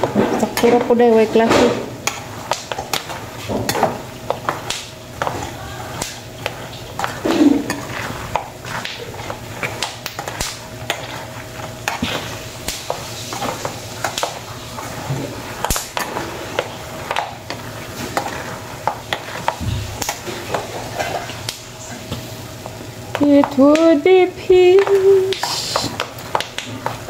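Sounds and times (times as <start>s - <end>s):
oil sizzling: 0.0s - 27.0s.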